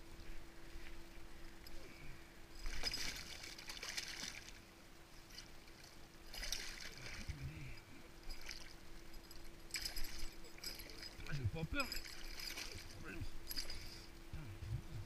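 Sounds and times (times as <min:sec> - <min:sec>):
fish splashing in water: 0:02.6 - 0:04.6, 0:06.3 - 0:07.3.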